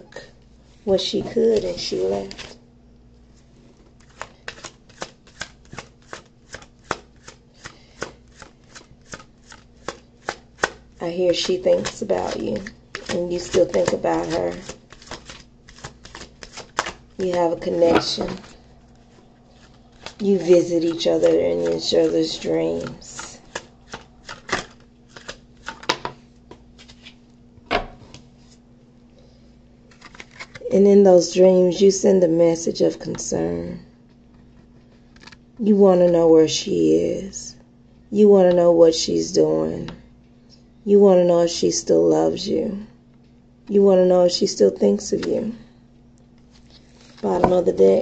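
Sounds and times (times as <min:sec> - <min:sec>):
cards being shuffled by hand: 0:01.3 - 0:02.6, 0:03.8 - 0:27.3, 0:29.9 - 0:30.7, 0:46.4 - 0:48.0.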